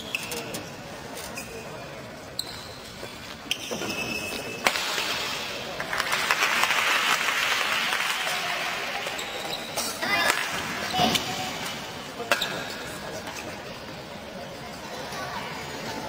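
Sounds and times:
crowd noise: 0.0 - 16.0
spectator applause: 5.8 - 9.0.

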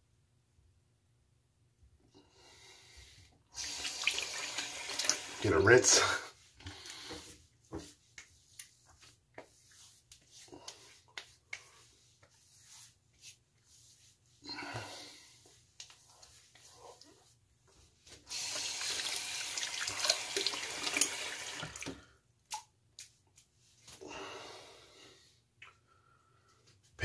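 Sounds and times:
tap water running into sink: 3.6 - 5.4, 18.3 - 22.0.

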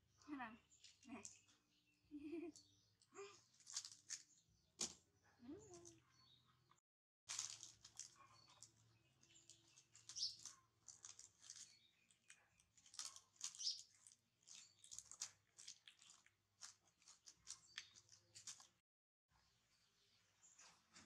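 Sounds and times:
plastic wrappers crinkling: 3.5 - 4.3, 7.3 - 18.8
monkey chewing: 13.9 - 18.5.

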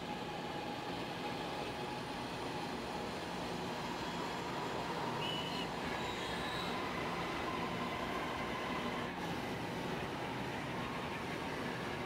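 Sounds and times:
electric train rolling past: 0.0 - 12.0
high squeal: 5.3 - 6.8.

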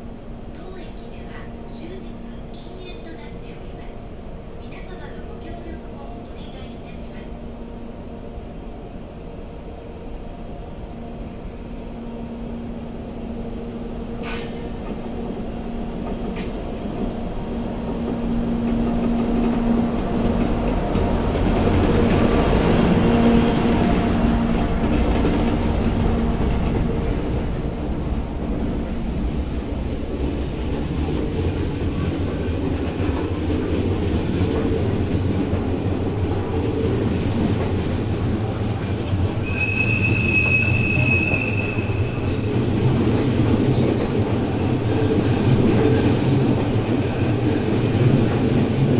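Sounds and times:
electric locomotive humming: 0.0 - 48.9
train wheels rumbling: 11.1 - 48.9.

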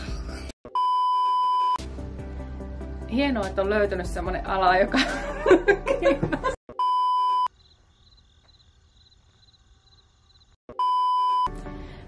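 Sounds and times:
woman's voice: 3.1 - 5.1
electronic beep: 6.7 - 7.5, 10.7 - 11.5.

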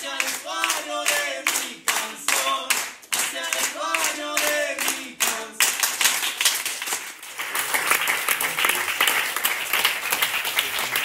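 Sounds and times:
people singing: 0.0 - 6.0
audience clapping in time: 0.0 - 11.0
continuous applause: 0.0 - 11.0.

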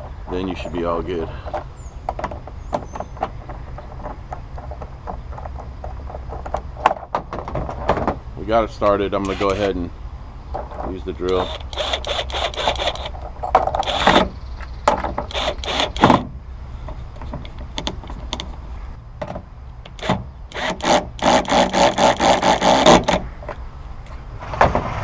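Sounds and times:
cordless drill driving screw: 9.2 - 9.7, 11.3 - 13.2, 13.8 - 14.3, 15.3 - 16.2, 19.9 - 23.2.

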